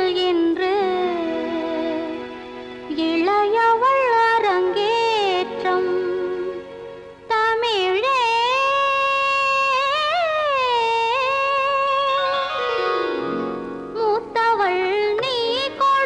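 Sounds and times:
woman singing ornamented notes: 2.9 - 6.6, 7.3 - 16.0.

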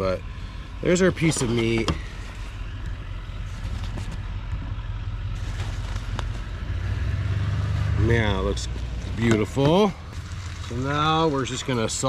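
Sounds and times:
vehicle engine idling: 0.0 - 12.0
paper towels crinkling: 5.3 - 6.6, 10.0 - 12.0.

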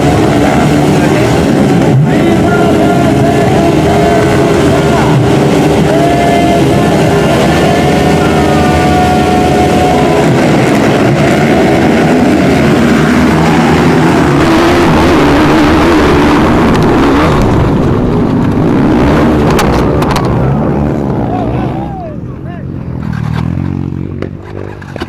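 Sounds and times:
motorcycles revving and accelerating: 0.0 - 25.0.

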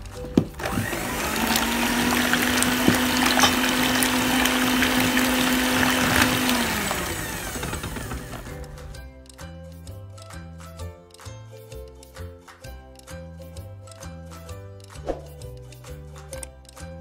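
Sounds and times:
electric hand mixer whirring: 0.6 - 8.6.

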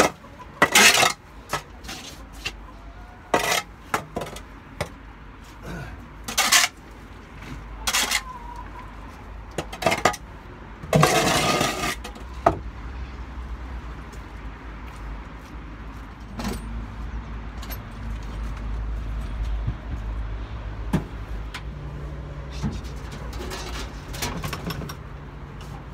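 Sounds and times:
metal shovel scraping floor: 0.0 - 1.2, 3.4 - 3.7, 6.3 - 6.8, 10.9 - 12.1.

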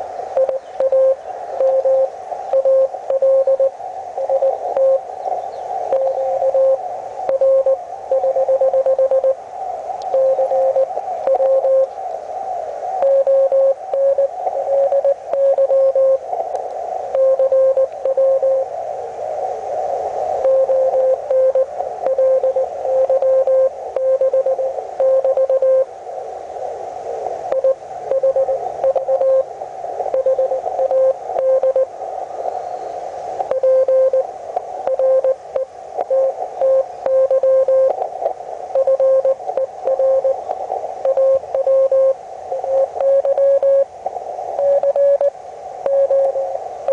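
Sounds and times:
receiver hiss: 0.0 - 46.9
morse code tone: 0.4 - 5.0, 5.9 - 9.4, 10.1 - 11.9, 13.0 - 16.2, 17.1 - 18.7, 20.4 - 25.9, 27.5 - 29.5, 30.1 - 31.9, 33.5 - 38.0, 38.8 - 40.4, 41.0 - 43.9, 44.6 - 45.3, 45.9 - 46.9.

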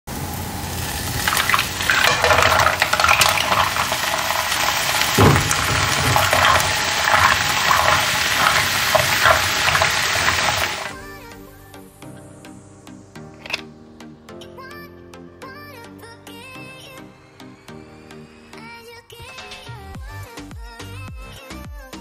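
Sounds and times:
garlic sizzling in a pan: 0.1 - 11.0
mussel shells clattering in pan: 0.7 - 10.9.

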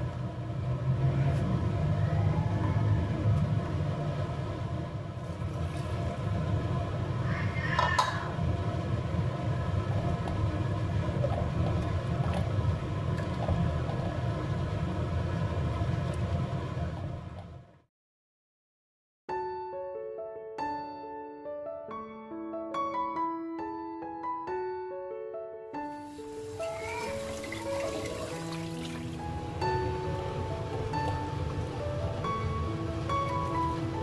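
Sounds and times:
low mechanical rumble: 0.0 - 17.9, 26.1 - 34.0.

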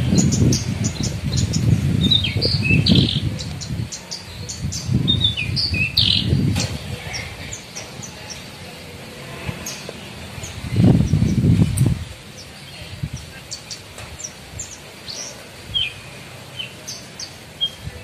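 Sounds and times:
bird chirping: 0.0 - 8.7.

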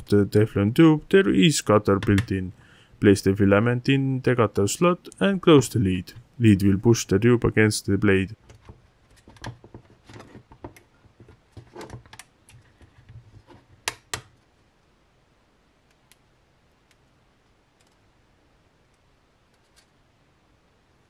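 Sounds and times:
plastic clicks and rattles: 8.5 - 12.8.

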